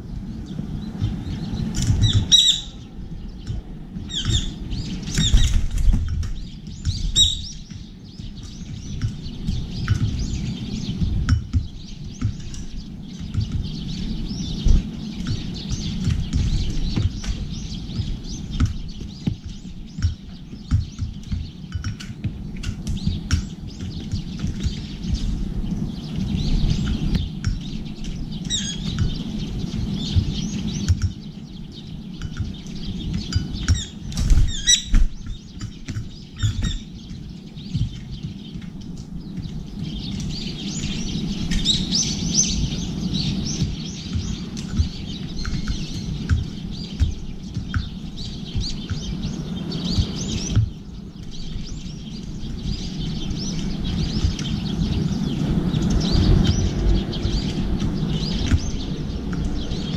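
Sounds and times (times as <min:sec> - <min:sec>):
birds chirping: 0:00.0 - 0:59.9
steady low rumble: 0:00.0 - 0:59.9
wings fluttering: 0:00.0 - 0:59.9
beaks tapping metal dishes: 0:32.2 - 0:34.0.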